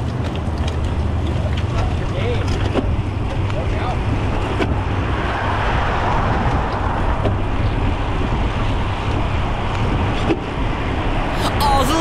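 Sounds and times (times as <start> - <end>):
tyre and road noise: 0.0 - 11.0.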